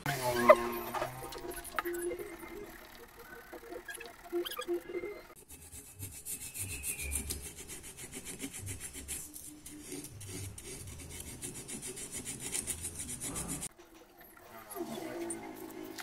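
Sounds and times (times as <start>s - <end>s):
scraping strokes on metal: 5.3s - 13.7s.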